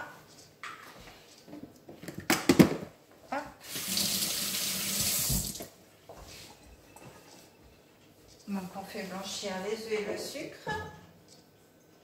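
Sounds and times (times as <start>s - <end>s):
tap water splashing into sink: 3.8s - 5.7s.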